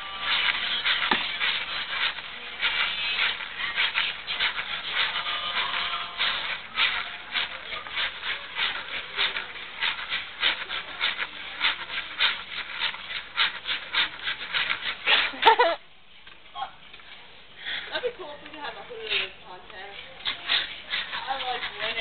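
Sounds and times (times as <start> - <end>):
hula hoop sharp hit: 0.0 - 2.2
hula hoop rasping swish: 0.0 - 15.8, 17.9 - 22.0.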